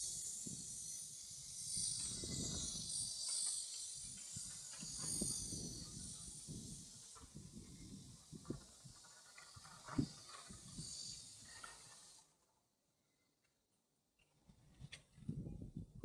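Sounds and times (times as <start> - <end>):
insects shrilling: 0.0 - 12.2.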